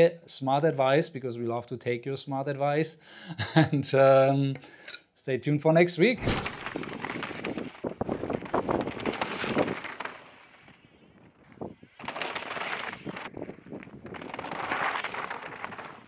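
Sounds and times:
bike tyres crunching over gravel: 0:06.3 - 0:16.0.

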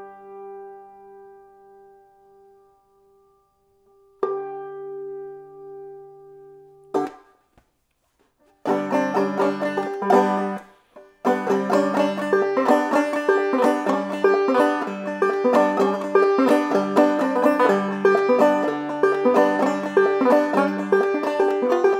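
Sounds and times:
banjo picking: 0:04.2 - 0:05.7, 0:06.6 - 0:21.9.

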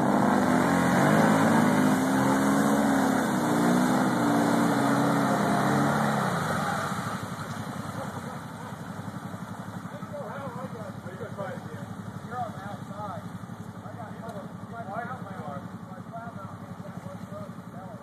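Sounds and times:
quad engine revving hard: 0:00.0 - 0:07.3.

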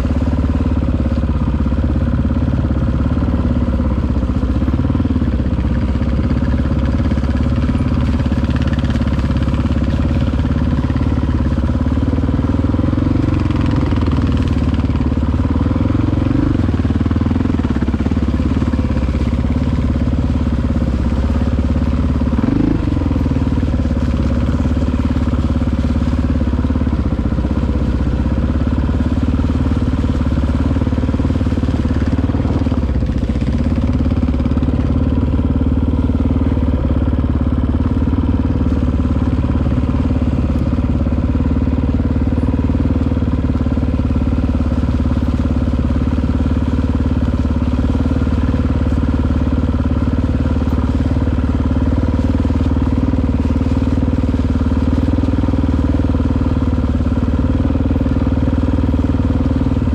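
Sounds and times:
dirt bike engine running: 0:00.0 - 0:59.9.

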